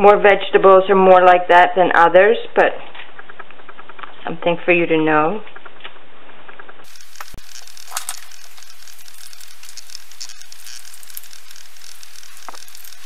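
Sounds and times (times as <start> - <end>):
steady hiss: 6.9 - 13.0.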